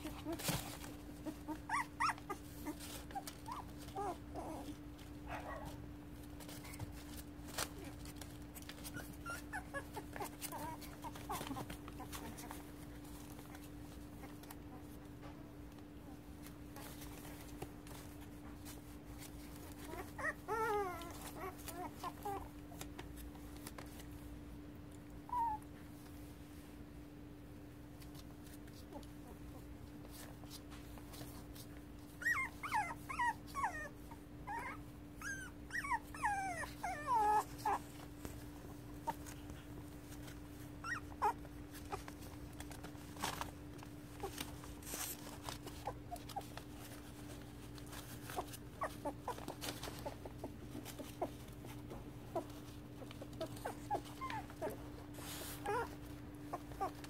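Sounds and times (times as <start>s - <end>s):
puppies whimpering and squeaking: 0.0s - 5.1s, 6.5s - 15.0s, 16.8s - 22.9s, 25.2s - 25.8s, 32.0s - 43.4s, 44.1s - 57.0s.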